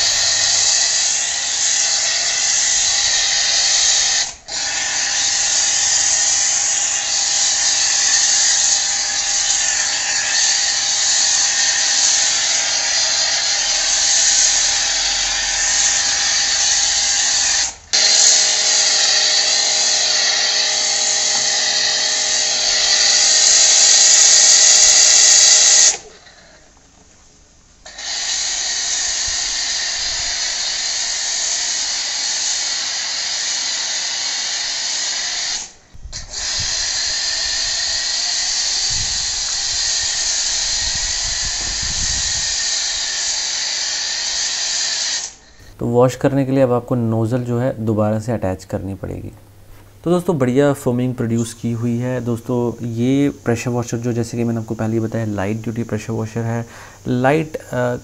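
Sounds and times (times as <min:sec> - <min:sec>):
pressure washer motor whine: 0:00.0 - 0:26.1, 0:27.9 - 0:45.7
foam spray hissing: 0:00.0 - 0:26.6, 0:27.9 - 0:46.2, 0:49.1 - 0:58.0.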